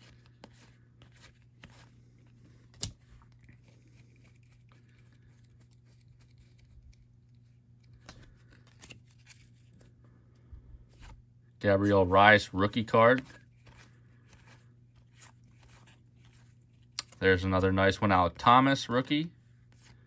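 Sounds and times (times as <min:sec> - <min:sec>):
cards sliding and tapping: 0:00.0 - 0:09.9.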